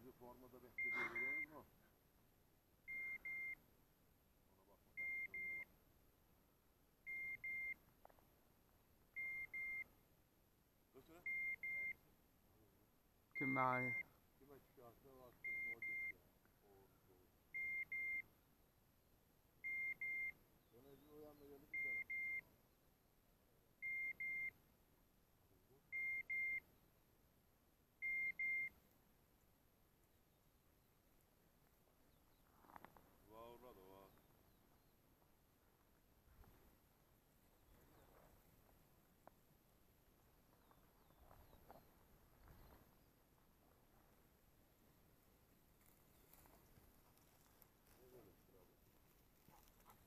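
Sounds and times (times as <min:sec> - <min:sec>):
beeper collar double beep: 0:00.8 - 0:01.5, 0:05.0 - 0:05.7, 0:13.4 - 0:14.1, 0:15.5 - 0:16.2, 0:21.7 - 0:22.4
short high beeps: 0:00.8 - 0:01.5, 0:02.9 - 0:03.6, 0:05.0 - 0:05.7, 0:07.1 - 0:07.8, 0:09.2 - 0:09.9, 0:11.2 - 0:12.0, 0:15.4 - 0:16.2, 0:17.6 - 0:18.3, 0:19.6 - 0:20.4, 0:21.7 - 0:22.4, 0:23.8 - 0:24.6, 0:25.9 - 0:26.6, 0:28.0 - 0:28.8.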